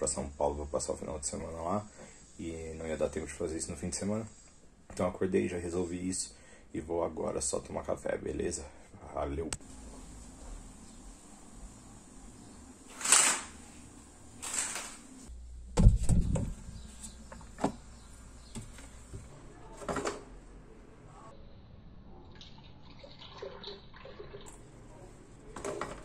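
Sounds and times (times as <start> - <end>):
heavy thump: 15.7 - 16.6
kitchen knocks and clatters: 18.5 - 20.3, 25.5 - 26.0
coffee pouring into glass: 22.4 - 24.7.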